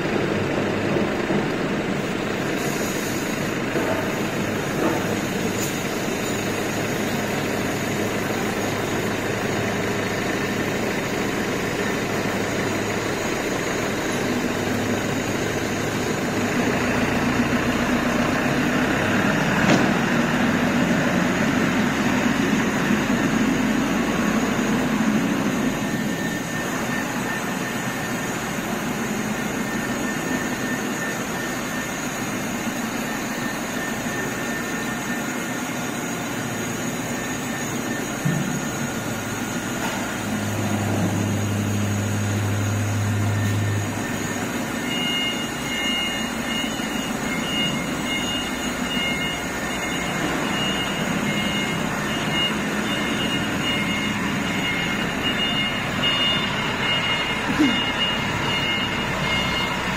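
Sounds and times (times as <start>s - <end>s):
faint high whine: 21.0s - 59.9s.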